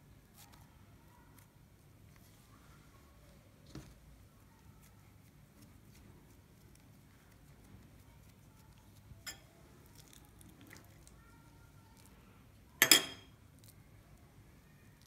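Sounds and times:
dough squishing by hand: 0.0 - 12.8
metal spoon clinking on ceramic bowl: 9.2 - 9.5, 12.8 - 13.3.

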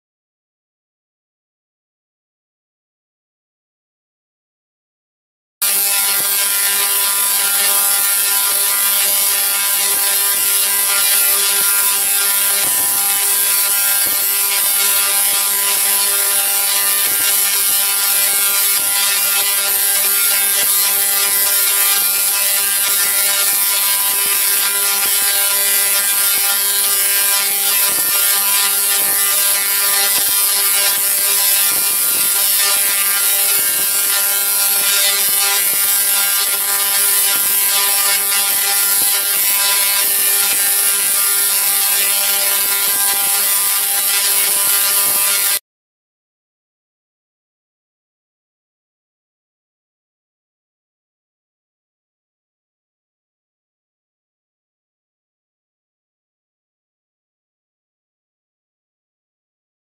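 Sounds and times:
tesla coil buzzing and crackling: 5.6 - 45.6.

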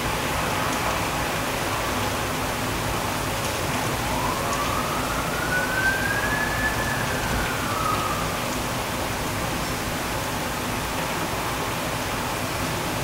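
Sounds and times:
heavy rain pouring: 0.0 - 13.0
emergency siren wailing: 3.6 - 9.5.

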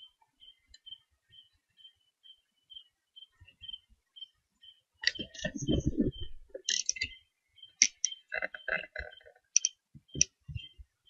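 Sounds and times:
sharp clicks and knocks: 5.0 - 7.2, 7.8 - 10.7.

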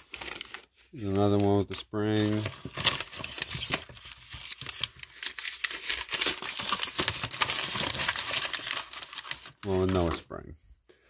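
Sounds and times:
plastic packaging crinkling: 0.0 - 10.2.

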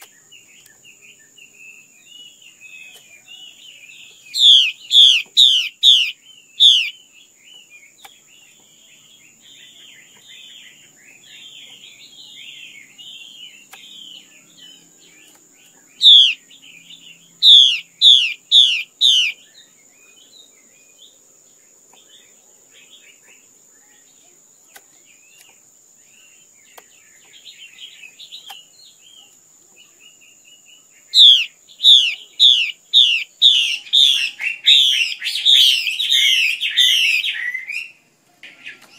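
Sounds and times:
bird chattering: 4.3 - 7.0, 15.9 - 19.4, 31.2 - 37.8.

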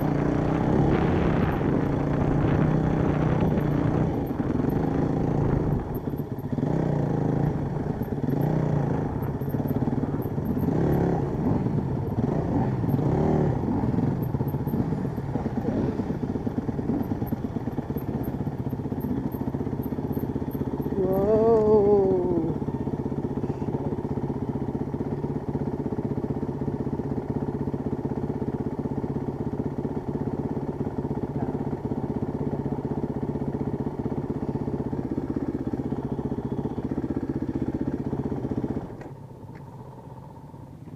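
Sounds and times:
dirt bike engine revving: 0.0 - 22.6.

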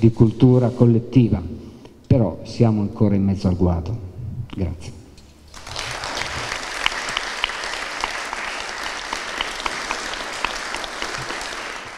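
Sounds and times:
audience applause: 5.5 - 11.9.

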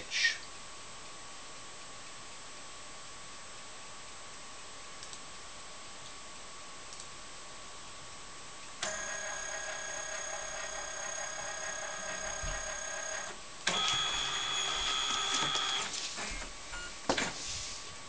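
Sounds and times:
scanner motor whirring: 8.8 - 16.9.

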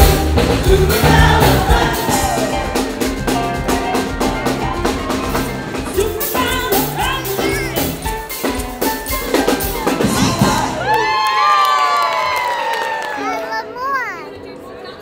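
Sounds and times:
live band playing upbeat song: 0.0 - 11.0
drums: 0.0 - 11.4
person singing: 0.5 - 2.6, 5.9 - 8.1.

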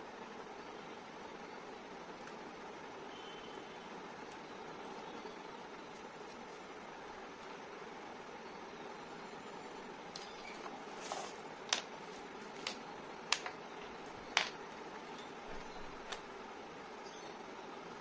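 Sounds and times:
soft handling noises: 10.2 - 16.3.

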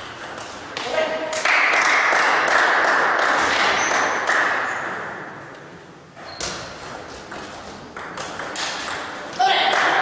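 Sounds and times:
table tennis bat hits: 6.4 - 10.0.

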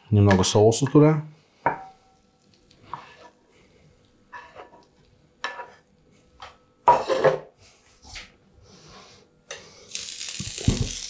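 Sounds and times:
metal spatula scraping a pan: 2.8 - 3.4, 4.3 - 4.8, 5.4 - 5.8.

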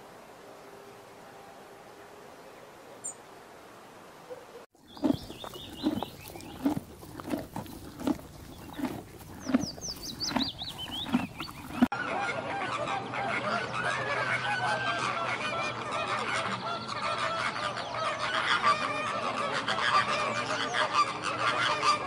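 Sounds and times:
flamingos honking and calling: 5.0 - 22.0
high bird chirp: 7.5 - 11.8
small birds chirping and whistling: 9.4 - 11.9.

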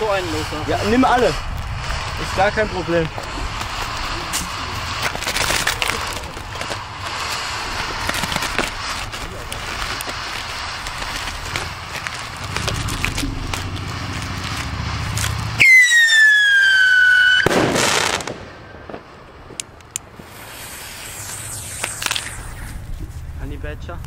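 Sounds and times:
firework bang with crackle: 0.0 - 19.6, 20.2 - 23.3
firework whistle falling: 3.3 - 18.8, 20.3 - 22.9
small pops: 19.5 - 22.8.

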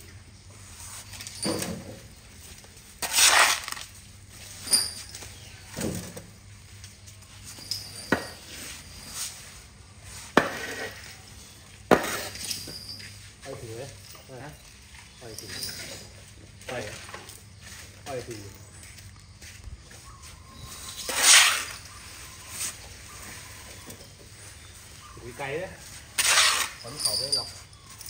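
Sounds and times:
shovel scraping concrete floor: 2.9 - 6.2, 7.4 - 11.2, 11.9 - 13.1, 20.6 - 23.8, 25.8 - 27.5.

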